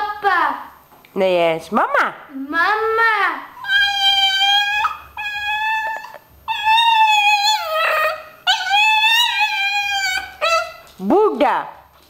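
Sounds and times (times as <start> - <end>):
small dog howling: 3.6 - 10.8.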